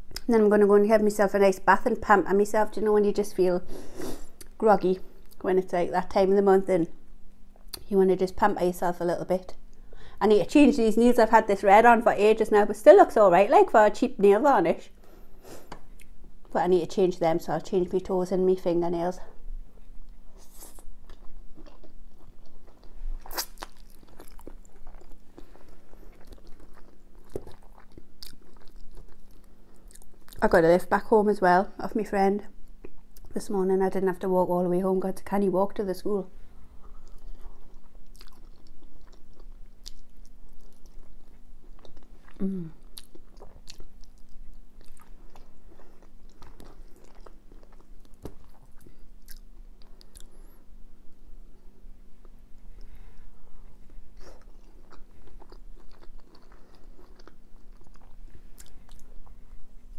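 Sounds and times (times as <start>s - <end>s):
steady low hum: 0.0s - 59.9s
person chewing food: 19.8s - 30.4s, 36.7s - 50.5s, 52.2s - 59.9s.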